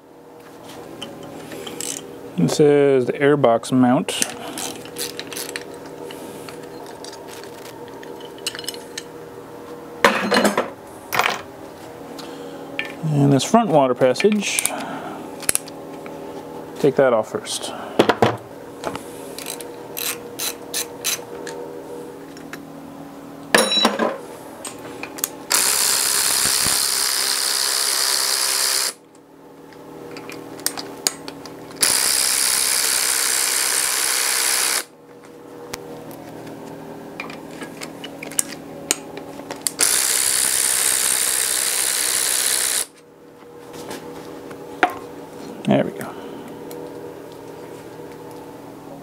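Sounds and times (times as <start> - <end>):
power ratchet running: 25.5 - 29.0, 31.8 - 34.9, 39.7 - 43.0.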